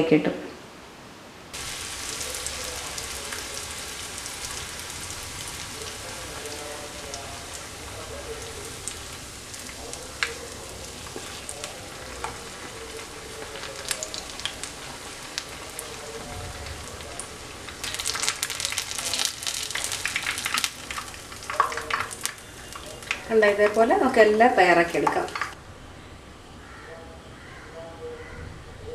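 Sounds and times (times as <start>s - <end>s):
food deep-frying in oil: 1.5s - 25.6s
loud sizzling in oil: 1.5s - 25.6s.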